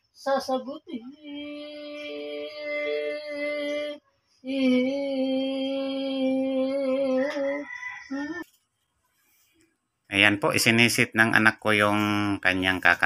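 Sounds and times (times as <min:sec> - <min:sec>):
woman singing unaccompanied: 0:01.1 - 0:08.4.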